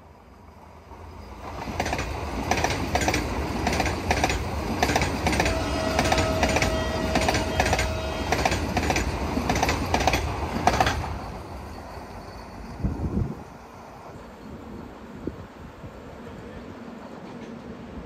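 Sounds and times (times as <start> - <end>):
steady train rumble: 0.0 - 18.0
train wheels clattering over rail joints: 1.4 - 11.5.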